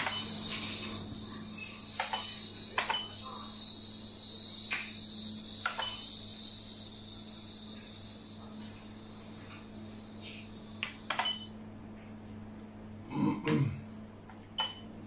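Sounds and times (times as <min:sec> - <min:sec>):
insect chorus chirring: 0:00.0 - 0:11.6
low hum: 0:00.0 - 0:15.0.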